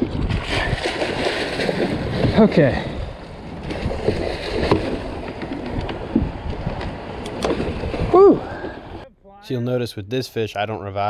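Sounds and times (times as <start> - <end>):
water noise: 0.0 - 9.4
wind: 0.0 - 11.0.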